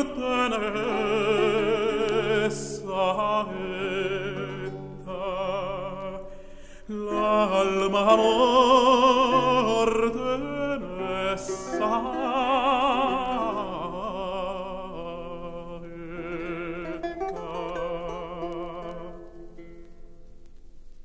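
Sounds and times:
tenor singing with vibrato: 0.0s - 20.2s.

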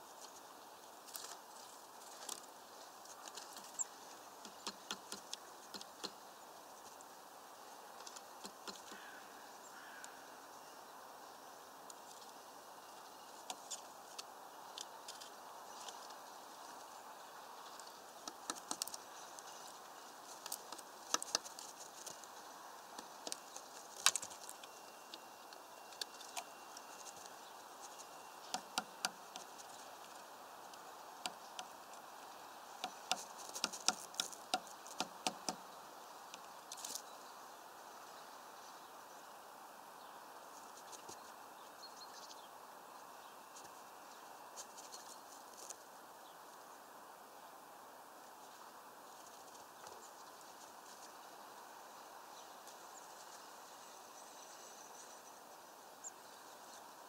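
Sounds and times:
faint steady hiss: 0.0s - 57.0s
woodpecker tapping on mesh feeder: 4.4s - 6.2s, 8.4s - 9.2s, 18.2s - 19.0s, 20.5s - 21.7s, 28.4s - 29.6s, 32.8s - 35.6s.

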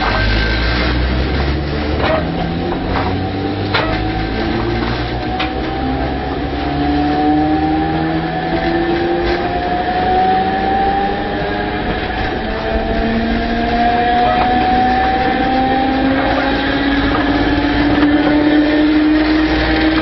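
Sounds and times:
train running rumble: 0.0s - 6.8s, 9.3s - 20.0s
train motors whining rising: 0.0s - 20.0s.

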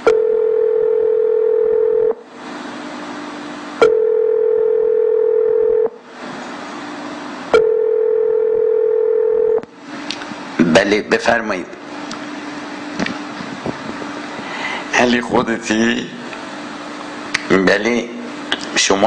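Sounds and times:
telephone ringback tone: 0.1s - 2.2s, 3.8s - 5.9s, 7.6s - 9.6s.

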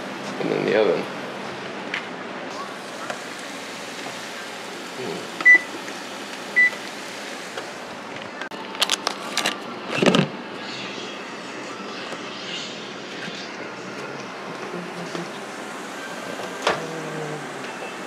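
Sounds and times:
oven control panel beeping: 5.4s - 5.8s, 6.6s - 6.8s.

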